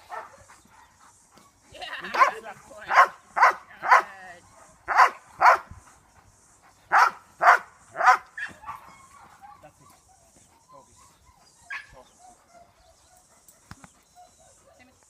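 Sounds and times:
large dog barking: 0:00.0 - 0:01.0, 0:02.0 - 0:05.7, 0:06.9 - 0:10.3.

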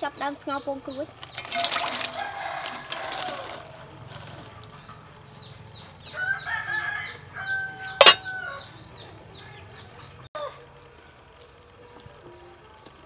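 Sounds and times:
rooster crowing: 0:01.6 - 0:03.8, 0:06.1 - 0:08.8, 0:10.4 - 0:10.7
metal lid clanking on pot: 0:08.0 - 0:08.4.

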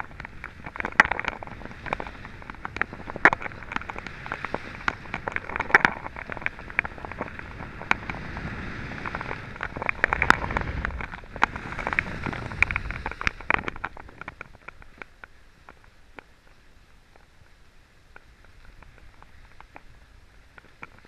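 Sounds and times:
skis scraping on hard snow: 0:00.0 - 0:15.0
wind rumble on microphone: 0:00.0 - 0:21.0.

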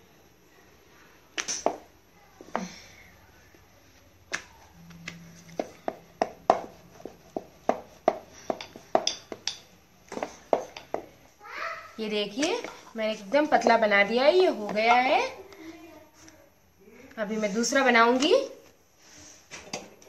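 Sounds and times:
rolling pin knocking on wooden board: 0:05.6 - 0:11.1.

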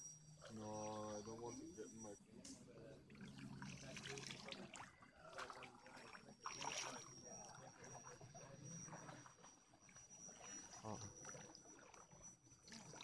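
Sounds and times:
thin steady high tone: 0:00.0 - 0:13.0
stream water trickling: 0:03.0 - 0:13.0.

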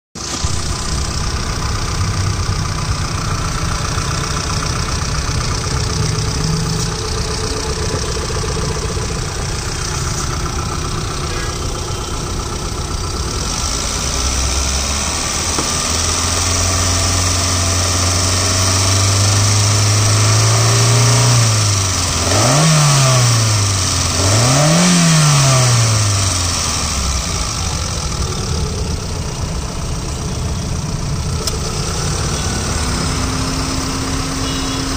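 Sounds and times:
car engine idling and revving: 0:00.2 - 0:34.9.

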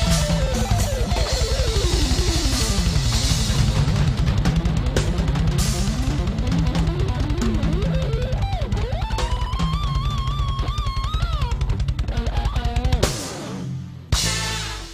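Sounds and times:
live band music: 0:00.0 - 0:03.9, 0:14.1 - 0:14.9
drum kit beat: 0:00.0 - 0:14.9
electric guitar: 0:00.0 - 0:14.9.

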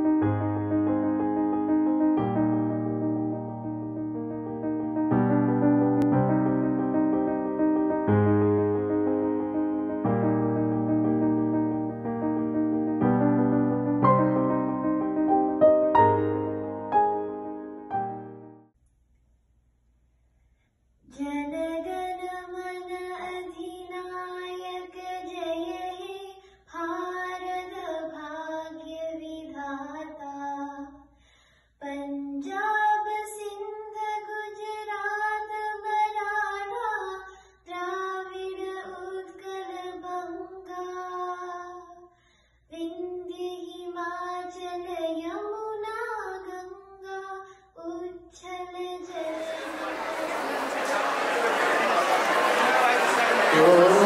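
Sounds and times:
girl singing unaccompanied: 0:21.1 - 0:30.9, 0:31.8 - 0:42.0, 0:42.7 - 0:49.3.

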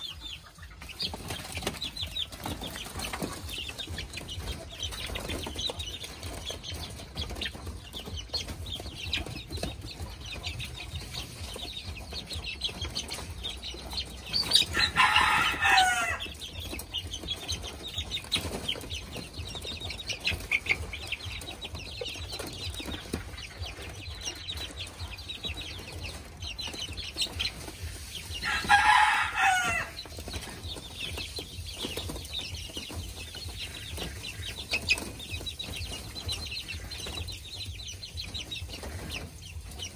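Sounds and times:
chickens clucking and peeping: 0:00.0 - 0:39.9
rooster crowing: 0:14.7 - 0:16.2, 0:28.4 - 0:30.0.

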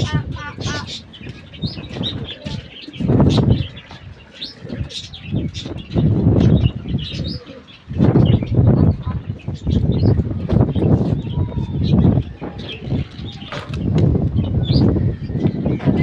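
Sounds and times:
pigeons cooing: 0:00.0 - 0:16.0
wings flapping: 0:12.4 - 0:14.6.

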